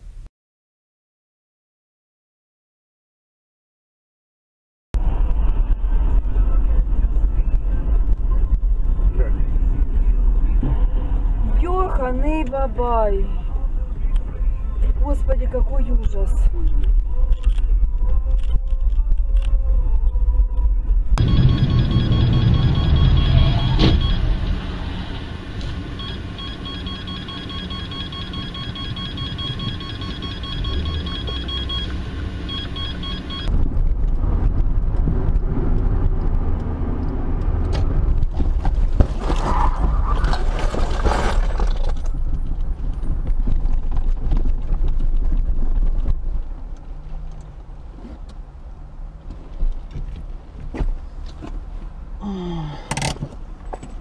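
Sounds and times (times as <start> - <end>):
car engine and tyre rumble: 5.0 - 54.0
high electronic tone: 21.2 - 33.5.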